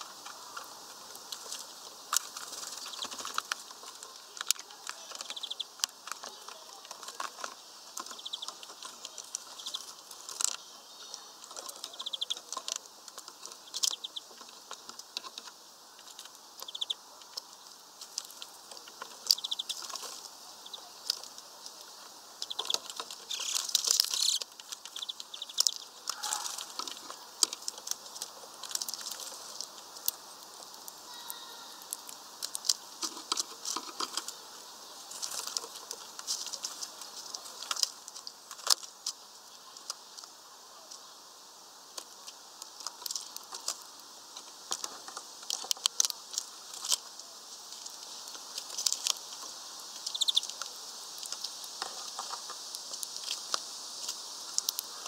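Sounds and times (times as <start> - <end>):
birds chirping: 0.0 - 55.0
wings flapping: 0.1 - 10.6, 22.4 - 31.2.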